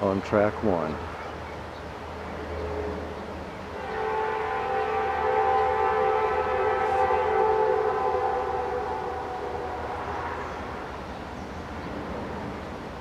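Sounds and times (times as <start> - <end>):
locomotive air horn: 3.8 - 11.0.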